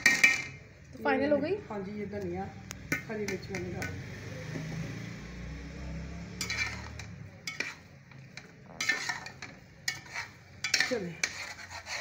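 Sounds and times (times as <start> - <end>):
metal spoon scraping metal pot: 0.0 - 0.6, 6.3 - 12.0.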